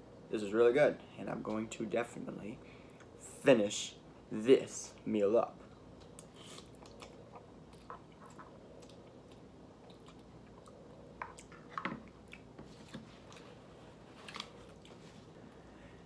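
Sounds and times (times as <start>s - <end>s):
chewing noodles: 6.0s - 15.3s.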